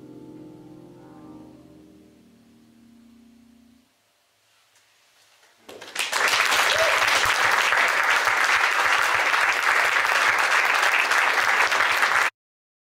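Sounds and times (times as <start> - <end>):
audience applauding: 5.6 - 12.3.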